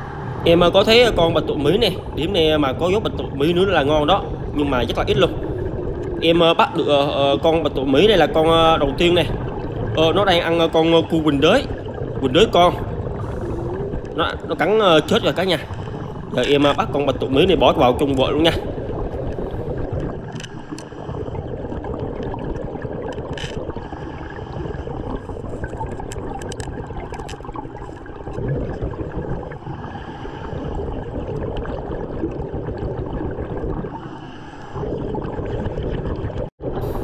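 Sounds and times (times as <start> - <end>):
underwater breathing bubbles: 0.0 - 37.0.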